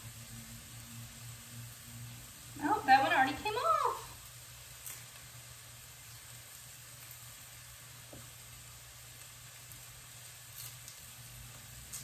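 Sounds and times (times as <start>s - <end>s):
vegetables sizzling in pan: 0.0s - 12.0s.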